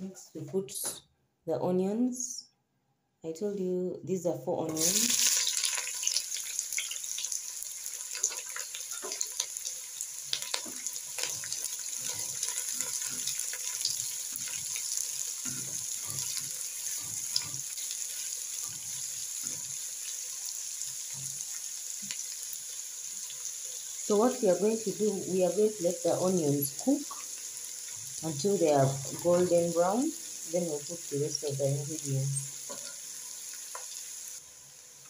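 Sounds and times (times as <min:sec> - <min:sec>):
onions sizzling in oil: 0:04.7 - 0:35.0
spatula scraping pan: 0:10.5 - 0:19.9.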